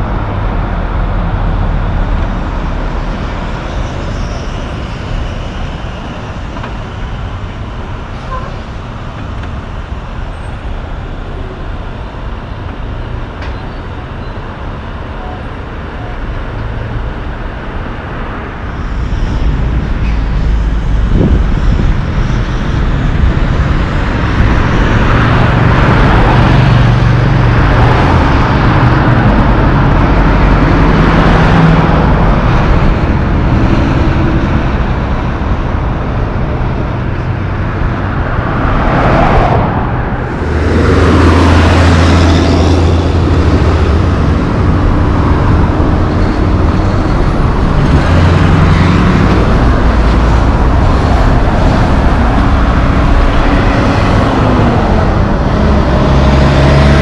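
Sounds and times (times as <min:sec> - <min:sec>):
road traffic rumble: 0:00.0 - 0:57.0
truck engine passing close: 0:00.0 - 0:57.0.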